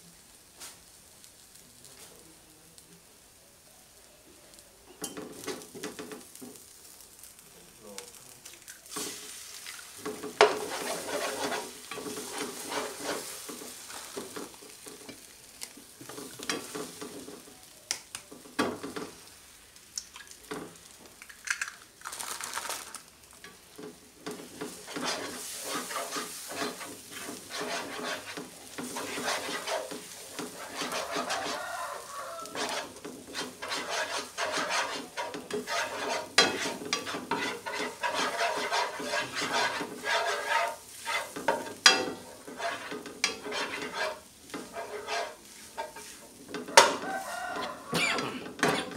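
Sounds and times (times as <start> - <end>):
egg sizzling in oil: 0.0 - 48.9
egg hitting hot pan: 8.6 - 17.3, 32.5 - 48.9
spatula scraping pan: 8.9 - 17.5, 23.4 - 48.9.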